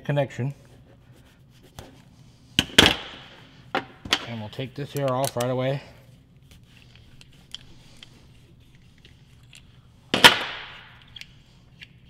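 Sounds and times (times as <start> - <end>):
small clicks of wires handled: 4.9 - 5.6, 6.8 - 9.8.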